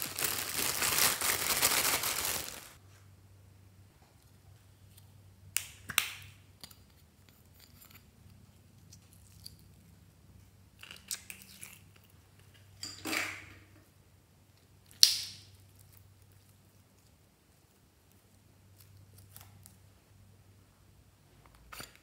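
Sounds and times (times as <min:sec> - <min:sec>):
slime snapping and popping: 0:15.0 - 0:15.4.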